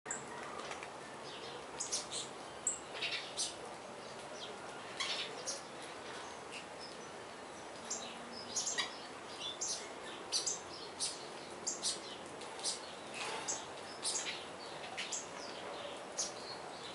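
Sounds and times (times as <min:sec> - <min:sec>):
finches chirping: 0:04.4 - 0:16.9.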